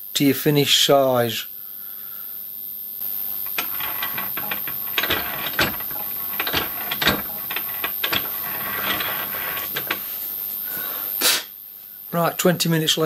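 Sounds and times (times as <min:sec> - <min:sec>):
slotting tool scraping metal: 0:03.3 - 0:10.2.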